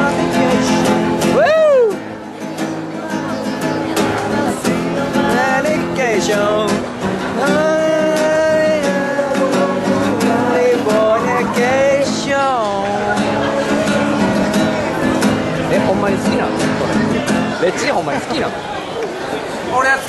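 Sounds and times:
man singing: 0.0 - 1.7, 4.3 - 16.3
acoustic guitar strumming: 0.0 - 19.7.

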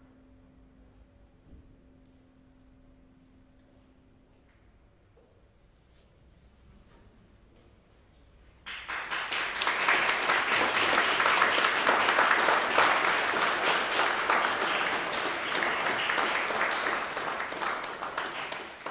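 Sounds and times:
audience applauding: 8.7 - 18.9.

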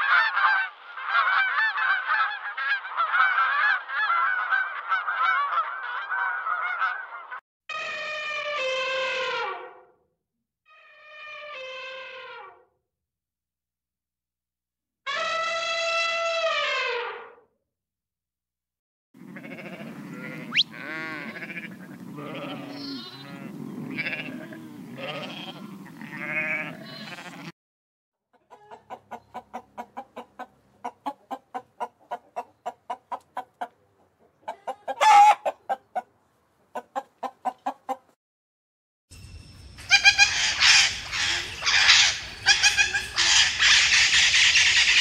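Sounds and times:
chorus of animal calls: 0.0 - 7.4, 19.2 - 27.5, 34.4 - 35.6, 39.8 - 45.0
loud animal call: 19.2 - 27.5, 39.8 - 45.0.

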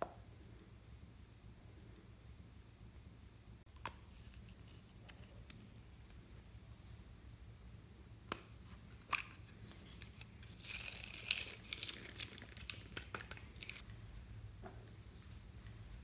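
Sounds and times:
plastic beads rattling onto slime: 10.5 - 13.8.

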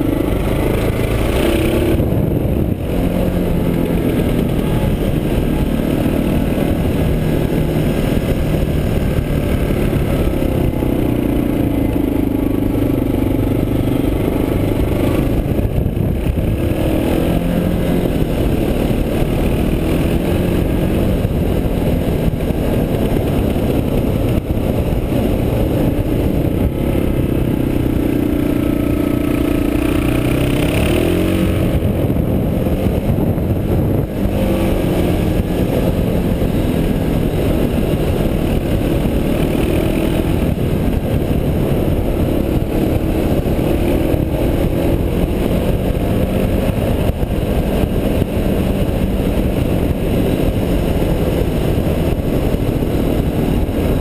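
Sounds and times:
motorcycle engine revving: 0.0 - 54.0
wind and road noise: 0.0 - 54.0.

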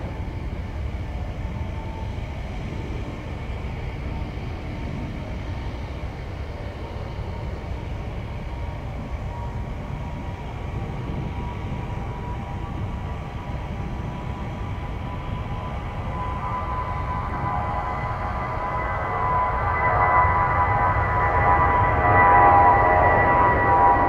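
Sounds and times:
jet airliner engines running: 0.0 - 24.0.

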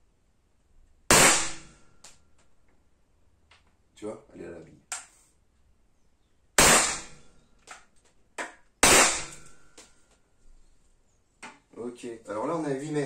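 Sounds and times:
gas pistol shots: 1.1 - 1.7, 6.6 - 7.3, 8.8 - 9.7.

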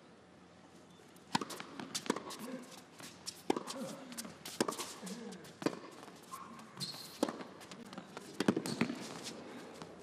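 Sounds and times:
racquet striking tennis ball: 1.3 - 2.4, 3.5 - 3.7, 4.5 - 5.0, 7.1 - 7.5, 8.4 - 9.0
tennis ball bouncing: 1.3 - 2.5, 3.3 - 5.0, 5.6 - 6.1, 6.7 - 9.3
shoe squeak: 6.3 - 7.3, 8.6 - 9.2.

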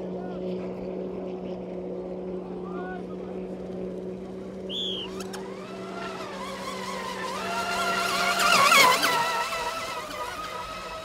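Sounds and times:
racing boat motors whining: 0.0 - 11.0.

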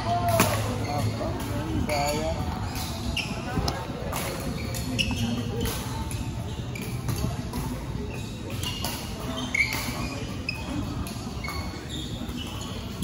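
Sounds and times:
shoes squeaking on court floor: 0.2 - 13.0.

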